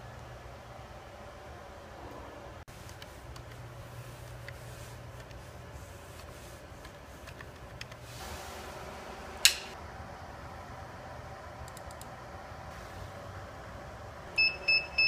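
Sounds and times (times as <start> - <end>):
power switch click: 9.4 - 9.8.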